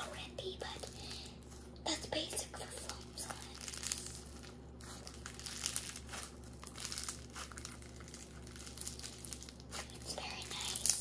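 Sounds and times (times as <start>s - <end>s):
slime squishing and crackling: 2.6s - 11.0s.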